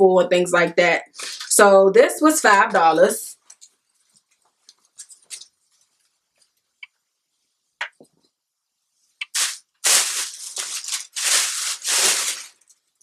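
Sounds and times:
plastic bag crinkling: 9.2 - 13.0.

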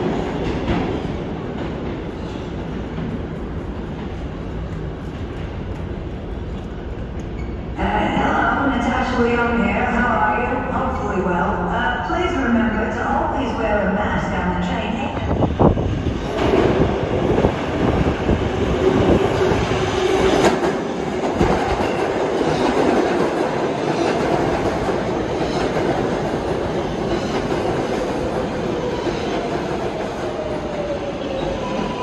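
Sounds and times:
subway train wheels clacking: 0.0 - 32.0
train running hum: 13.0 - 32.0.

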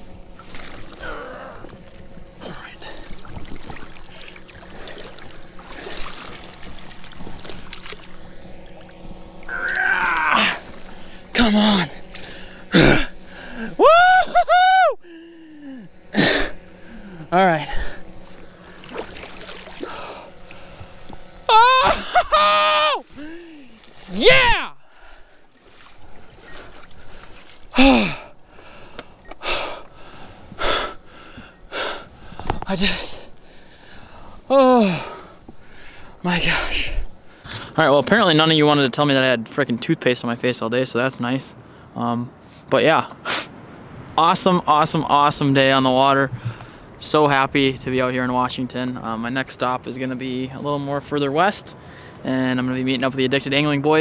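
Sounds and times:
river water splashing and sloshing: 0.0 - 12.7, 18.2 - 21.4, 23.0 - 29.2
small splashes: 0.4 - 2.1, 2.9 - 11.2, 18.2 - 22.2, 23.0 - 28.0
man breathing heavily: 1.0 - 3.3, 12.0 - 13.8, 15.0 - 18.9, 19.8 - 21.0, 23.1 - 23.9, 24.8 - 25.6, 26.4 - 37.8
man's loud exclamation: 13.7 - 15.9, 21.5 - 24.8.

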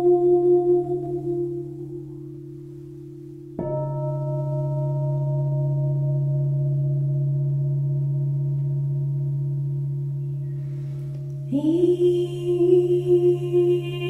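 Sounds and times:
crystal bowl singing with wavering pulse: 0.0 - 14.0
crystal singing bowl ringing: 0.0 - 14.0.

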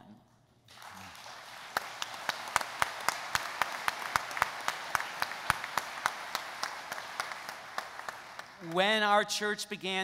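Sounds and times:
audience applauding: 0.7 - 9.2
sharp individual claps: 0.7 - 9.2.

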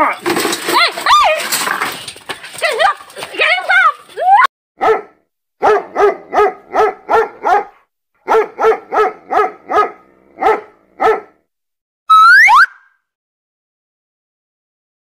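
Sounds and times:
dog barking: 4.8 - 11.4.

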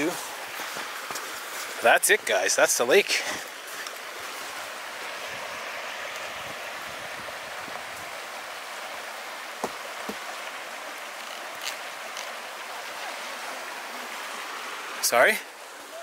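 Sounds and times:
creek water rushing: 0.0 - 16.0.

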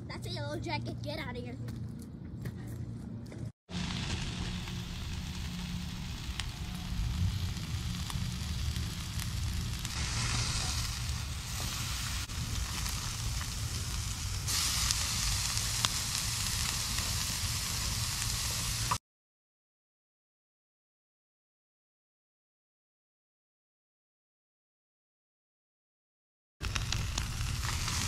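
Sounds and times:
meat sizzling on grill: 3.7 - 19.0, 26.6 - 28.0.

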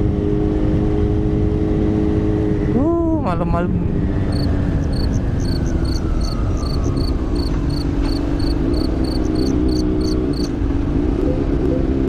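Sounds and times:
motorcycle engine cruising: 3.7 - 12.0.

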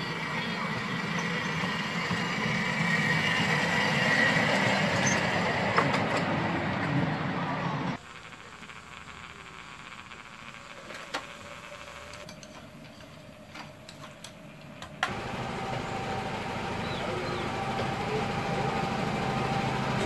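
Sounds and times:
engine-like running with rumble: 13.9 - 20.0.

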